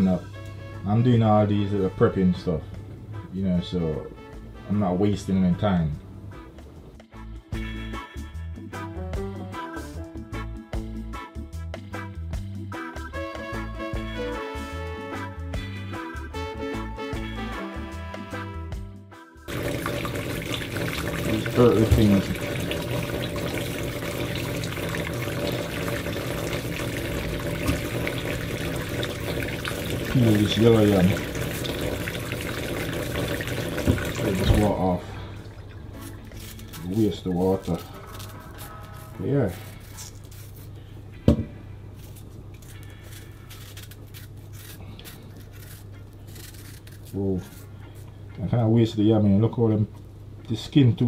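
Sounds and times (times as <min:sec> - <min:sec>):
tap running into sink: 0:19.5 - 0:34.9
knife scraping yam skin: 0:36.0 - 0:40.8, 0:42.0 - 0:48.1.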